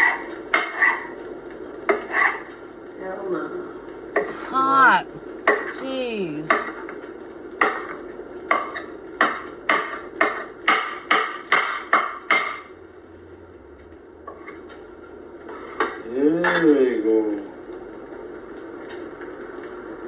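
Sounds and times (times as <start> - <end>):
knife chopping on wooden board: 8.5 - 12.7.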